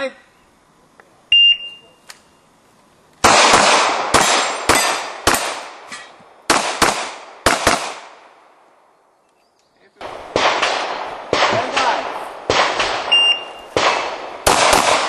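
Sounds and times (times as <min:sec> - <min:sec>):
gunshots in quick succession: 0:03.2 - 0:05.9, 0:06.5 - 0:08.2, 0:10.0 - 0:15.0.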